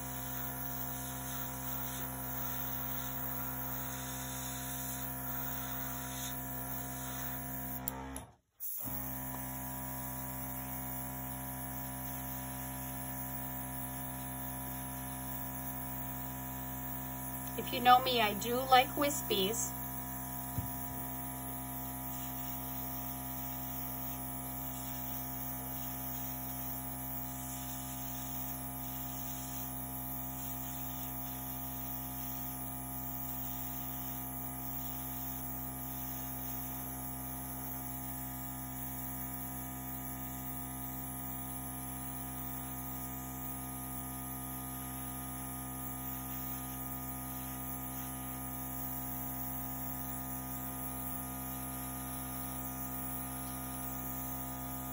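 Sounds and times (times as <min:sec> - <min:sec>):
airbrush air hissing: 0:00.0 - 0:07.5, 0:19.8 - 0:38.0
air compressor humming: 0:00.0 - 0:54.9.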